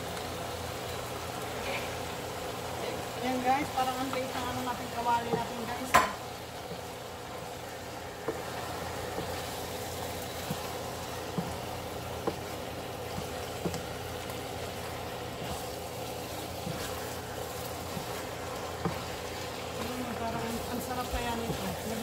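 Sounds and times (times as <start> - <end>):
chicken sizzling in a pan: 0.0 - 22.0
steady low hum: 0.0 - 22.0
spatula tapping a pan: 5.2 - 6.9, 8.2 - 9.6, 10.2 - 14.4, 16.3 - 22.0.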